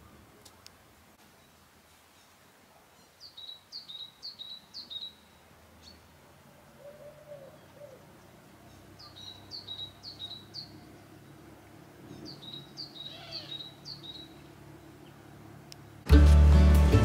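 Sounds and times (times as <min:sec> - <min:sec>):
songbird singing: 0:00.0 - 0:16.1.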